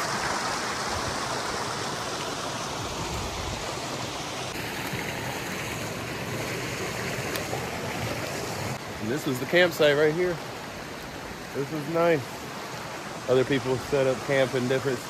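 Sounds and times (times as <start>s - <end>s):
creek water rushing: 0.0s - 15.0s.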